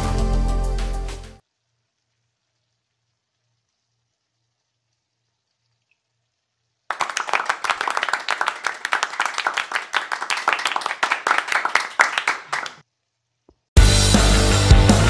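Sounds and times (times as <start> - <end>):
crowd applause: 6.9 - 12.8
loud rock music: 13.8 - 15.0.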